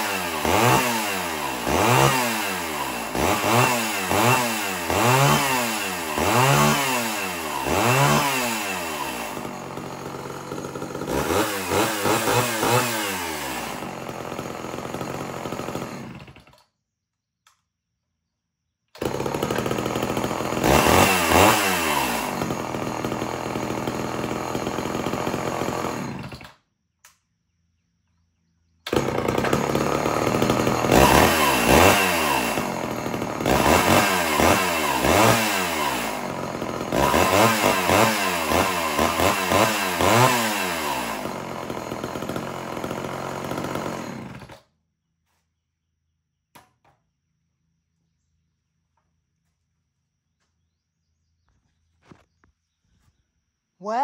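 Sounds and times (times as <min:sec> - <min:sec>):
chainsaw revving: 0:00.0 - 0:16.6, 0:19.0 - 0:26.6, 0:28.9 - 0:44.7.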